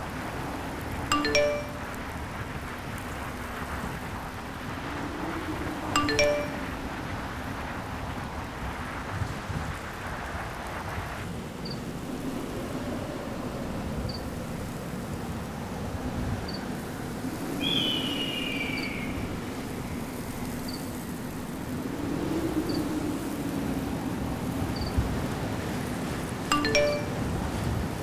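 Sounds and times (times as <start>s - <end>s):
faint high chirp: 1.1s - 2.0s, 6.0s - 6.9s, 26.5s - 27.3s
low wind rumble: 1.7s - 28.0s
long falling bird cry: 17.6s - 19.4s.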